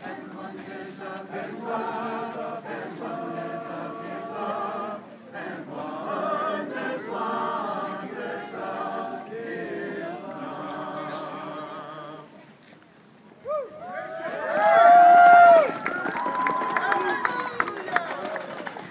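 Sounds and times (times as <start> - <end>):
group of voices singing: 0.0 - 12.5.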